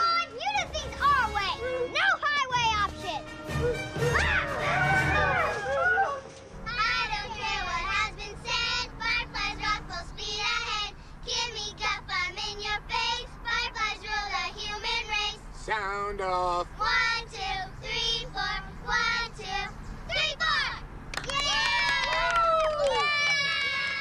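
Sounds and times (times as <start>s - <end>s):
sharp rising cries: 3.5s - 7.6s.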